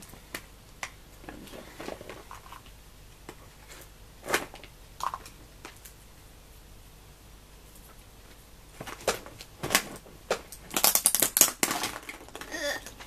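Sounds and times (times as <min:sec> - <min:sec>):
plastic eggs clicking and knocking: 0:08.9 - 0:13.0.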